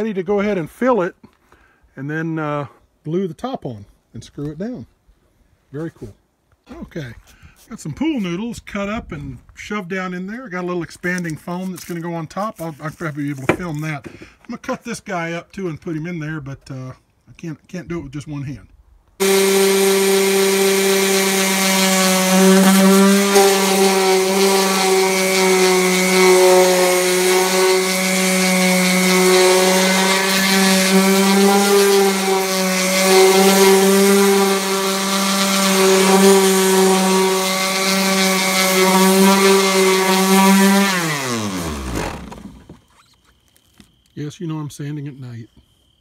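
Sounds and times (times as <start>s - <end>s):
orbital sander humming: 19.2s - 43.0s
sander motor winding down: 19.2s - 43.2s.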